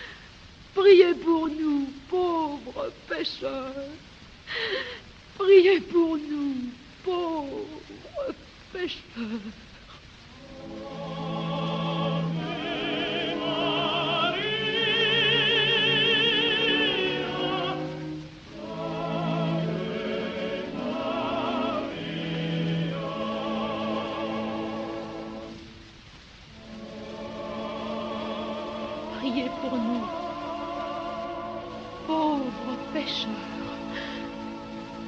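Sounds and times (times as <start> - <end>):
low sustained accompaniment: 10.3 - 25.8, 26.5 - 35.0
operatic singing with vibrato: 10.3 - 25.9, 26.5 - 35.0.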